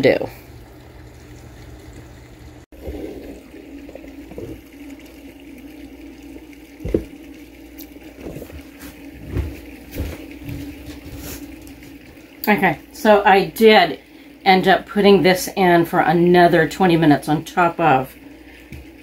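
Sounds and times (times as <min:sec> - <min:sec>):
dull knocks: 0:06.8 - 0:07.1.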